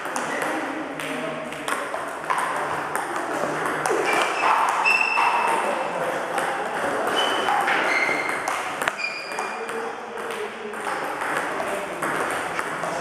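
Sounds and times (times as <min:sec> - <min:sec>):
short high squeaks: 0:04.0 - 0:05.5, 0:07.1 - 0:09.6
table tennis ball clicks: 0:06.4 - 0:12.8.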